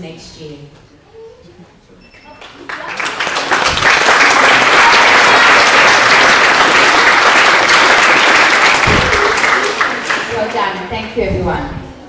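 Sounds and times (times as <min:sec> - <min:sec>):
audience applauding: 0:02.4 - 0:10.6.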